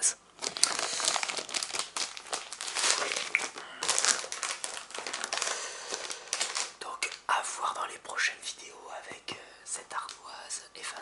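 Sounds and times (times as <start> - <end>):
crinkling and rustling: 0.4 - 7.3.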